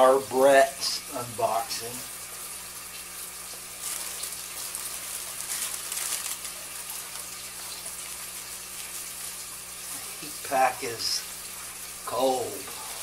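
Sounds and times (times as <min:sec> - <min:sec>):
steady hiss: 0:00.0 - 0:13.0
packing material rustling: 0:03.6 - 0:09.4.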